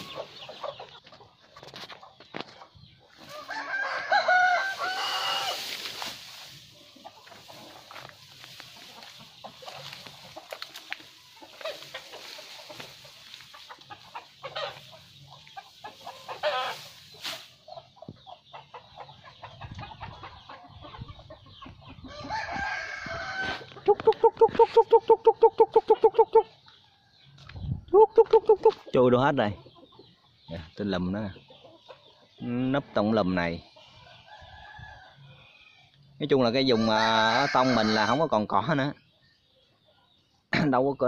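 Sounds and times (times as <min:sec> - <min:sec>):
chickens clucking: 0:00.0 - 0:41.0
rooster crowing: 0:03.3 - 0:05.6, 0:22.1 - 0:23.6, 0:36.7 - 0:38.3.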